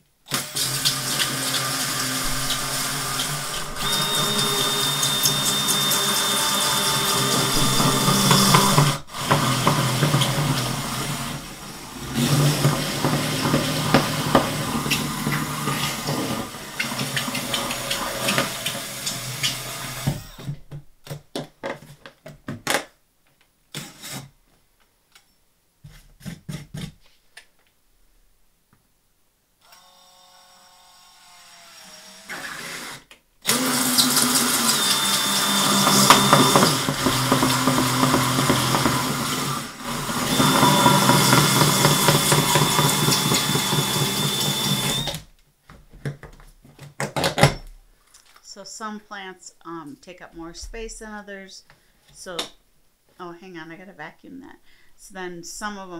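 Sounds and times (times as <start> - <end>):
cordless drill with hole saw: 0.3 - 20.6, 29.6 - 45.3.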